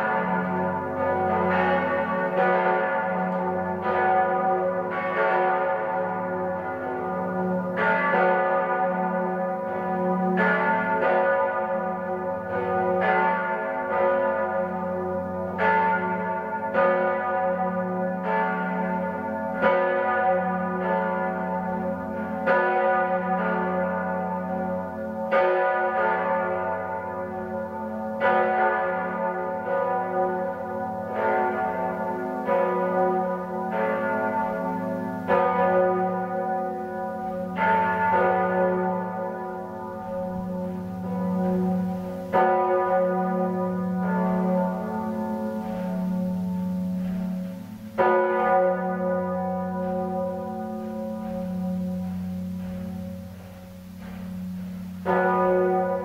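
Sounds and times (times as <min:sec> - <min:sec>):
church bells ringing: 0:00.0 - 0:56.0.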